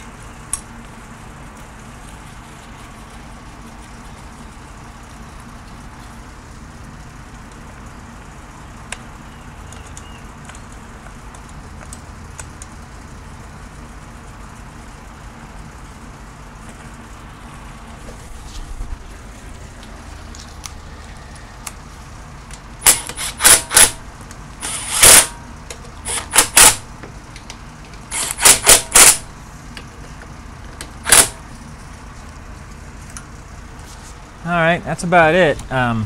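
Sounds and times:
socket ratchet clicking: 26.1 - 26.8, 28.1 - 29.3, 31.0 - 31.4.

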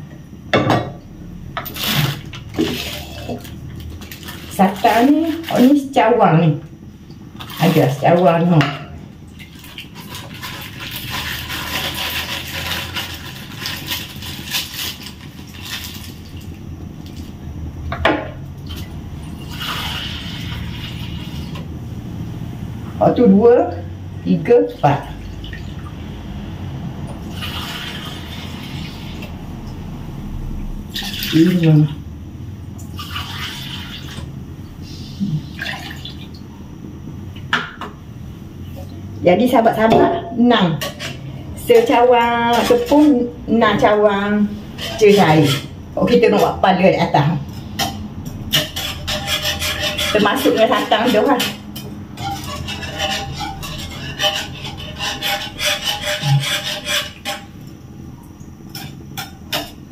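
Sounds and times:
steady low hum: 0.0 - 33.0.

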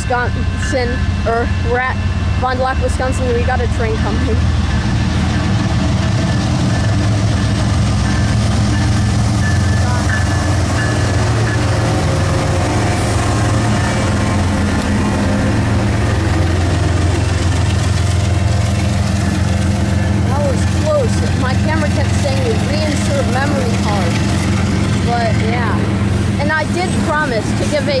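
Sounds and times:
freight locomotive engines droning: 0.0 - 28.0.

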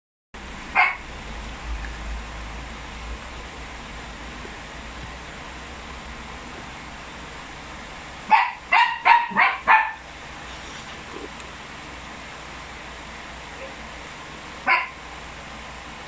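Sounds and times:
dog barking: 0.7 - 1.0, 8.3 - 10.0, 14.6 - 15.0.

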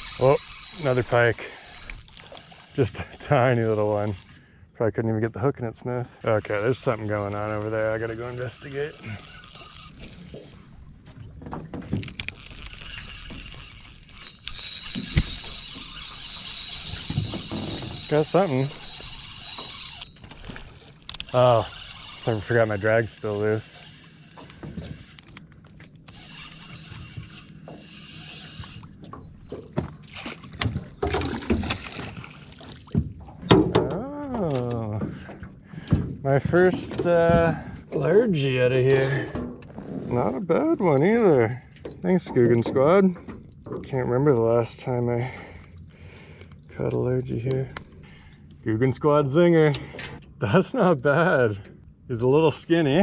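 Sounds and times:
water splashing: 26.2 - 33.7.

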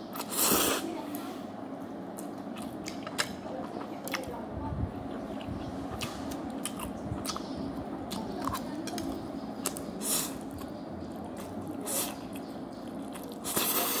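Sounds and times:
wet chewing and slurping: 2.2 - 4.3, 5.1 - 14.0.

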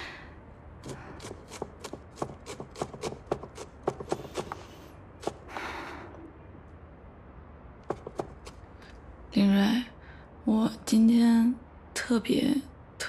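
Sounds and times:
cleaver chopping on wooden board: 1.2 - 4.6, 7.8 - 8.6.

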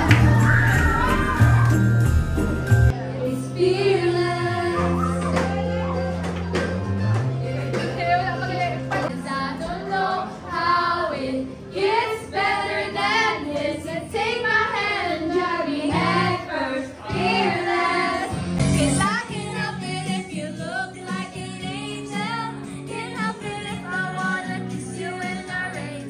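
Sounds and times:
backing music: 0.0 - 26.0
women singing pop song: 3.2 - 5.7, 9.0 - 26.0.

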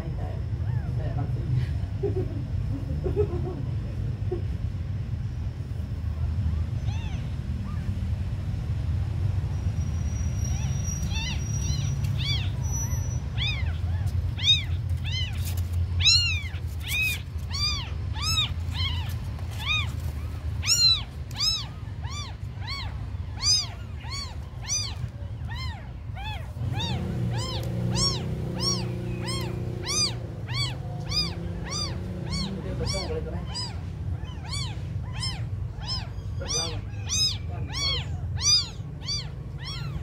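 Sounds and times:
kittens mewing: 6.2 - 8.2, 10.3 - 40.0.

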